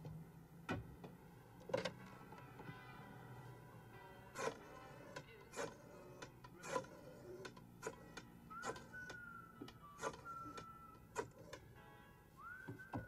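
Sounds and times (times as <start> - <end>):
high whistle-like tone: 8.4 - 11.6, 12.3 - 13.0.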